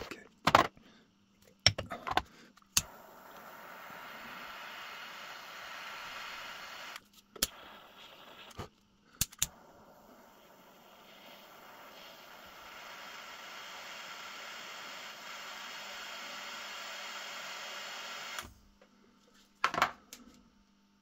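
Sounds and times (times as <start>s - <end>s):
torch lighter hissing: 2.7s - 18.5s.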